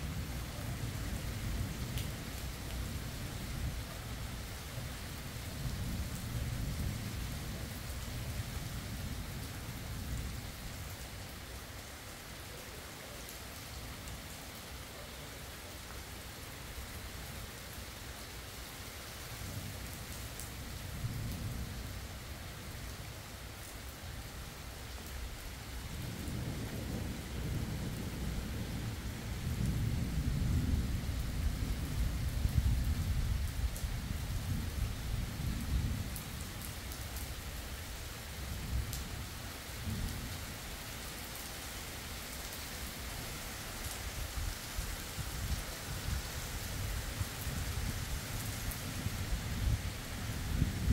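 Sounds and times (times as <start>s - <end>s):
low rumble of thunder: 0.0s - 11.0s, 19.4s - 22.9s, 25.2s - 40.6s, 44.4s - 50.9s
steady rain falling: 0.0s - 50.9s.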